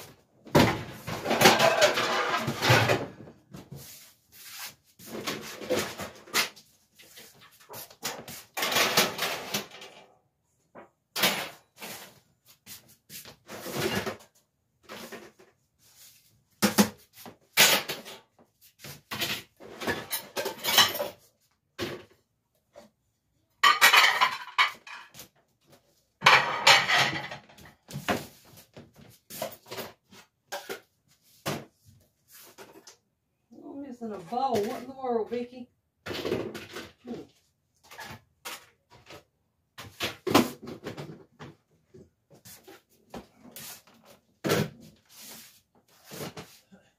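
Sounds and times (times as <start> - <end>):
dishes and silverware clattering: 1.2 - 3.2, 19.1 - 21.2, 23.6 - 25.3, 26.2 - 27.7.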